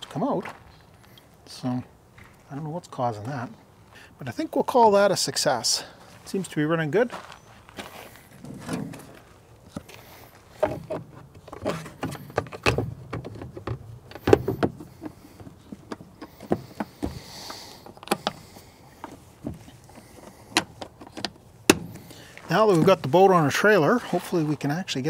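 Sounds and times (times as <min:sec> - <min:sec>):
plastic engine cover knocking: 0:10.6 - 0:17.2.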